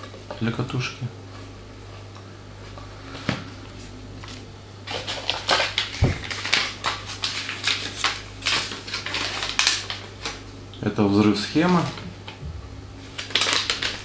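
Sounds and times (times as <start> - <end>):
paper rustling and crackling: 2.6 - 10.4, 13.0 - 14.0
low steady hum: 9.5 - 14.0
soft thump: 12.4 - 12.8.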